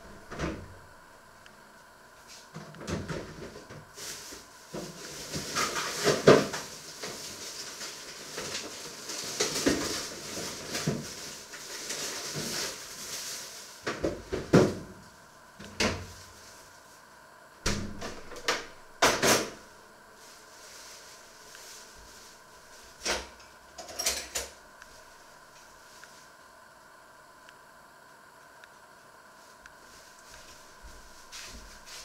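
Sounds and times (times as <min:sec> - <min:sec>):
rustling: 0:03.4 - 0:15.3, 0:15.9 - 0:17.1, 0:20.2 - 0:23.1, 0:29.4 - 0:32.0.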